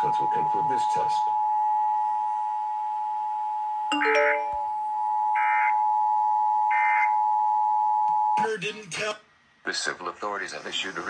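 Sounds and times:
brief chime: 3.9s - 4.9s
two-note alert tone: 3.9s - 4.9s.

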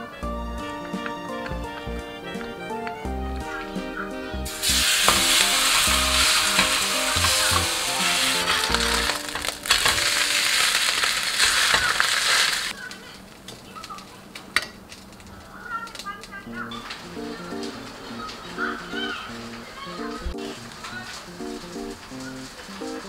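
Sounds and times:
batter frying in oil: 4.4s - 12.9s.

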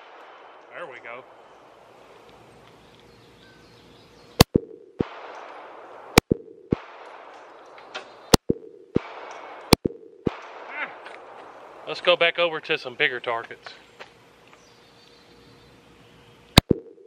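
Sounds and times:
pistol shots: 0.0s - 2.0s, 4.4s - 12.5s.

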